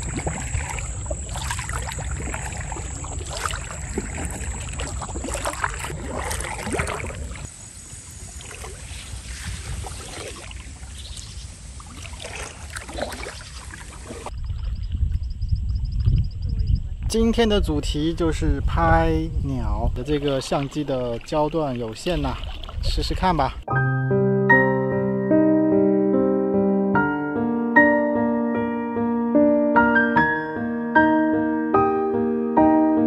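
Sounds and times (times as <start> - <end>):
water dripping off paddle: 0.0 - 7.5, 8.4 - 14.7, 20.0 - 22.9
kayak paddle splashing in water: 0.0 - 14.8, 20.0 - 23.2
wind rumbling on microphone: 0.0 - 23.6.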